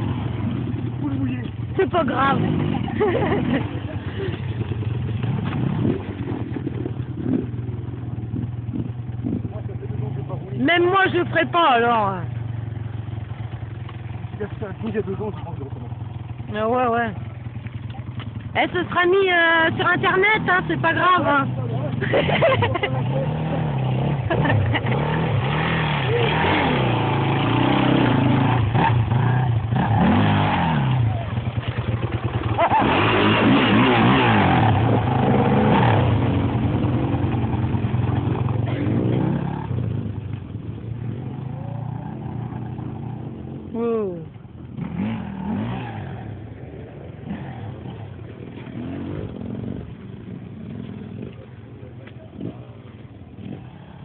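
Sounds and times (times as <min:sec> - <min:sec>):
dirt bike engine revving: 0:00.0 - 0:51.6, 0:52.3 - 0:54.0
small motorbike engine revving: 0:22.1 - 0:37.4, 0:44.7 - 0:46.4.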